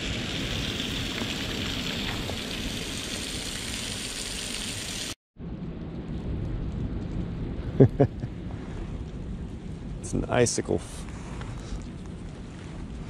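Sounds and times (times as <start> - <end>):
small waterfall hissing: 0.0 - 5.2.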